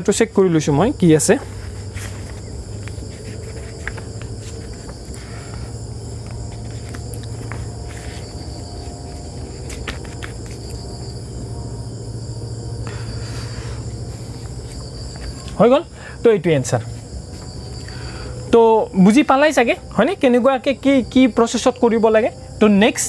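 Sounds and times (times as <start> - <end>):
crickets chirring: 0.0 - 23.0
low steady hum: 0.0 - 23.0
book pages rustling: 1.3 - 11.2, 13.4 - 15.6.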